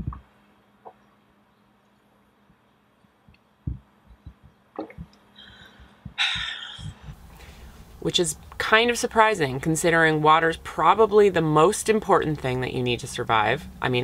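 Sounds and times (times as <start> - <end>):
person swallowing water: 0.0 - 0.2, 3.7 - 7.2
breathy exhale: 5.4 - 7.8.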